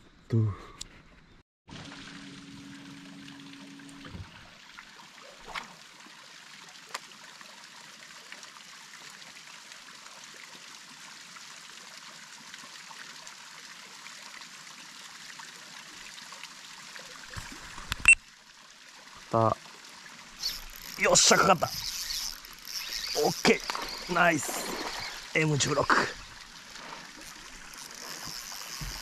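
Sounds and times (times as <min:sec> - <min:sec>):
water trickling: 0:01.7 - 0:29.0
low steady hum: 0:01.8 - 0:04.6.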